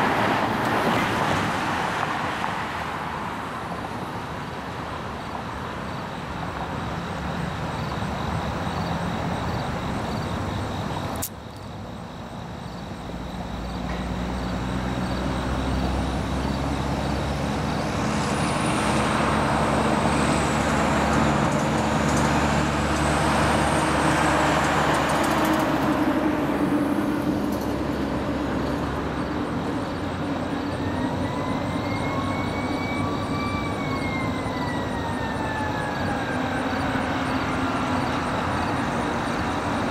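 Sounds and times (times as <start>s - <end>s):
busy road traffic: 0.0s - 39.9s
sharp click: 11.1s - 11.4s.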